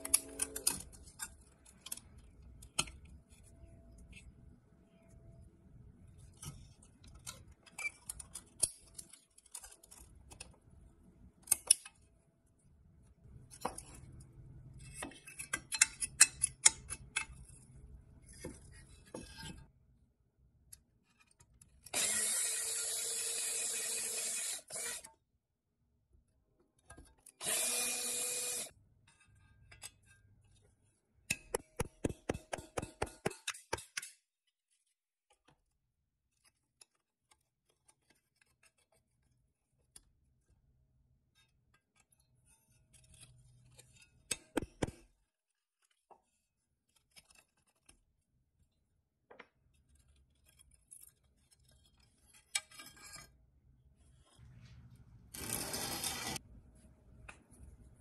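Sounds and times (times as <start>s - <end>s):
power drill whining: 22.0s - 25.1s, 27.4s - 28.7s, 55.4s - 56.4s
punch tapping on metal: 31.3s - 34.1s.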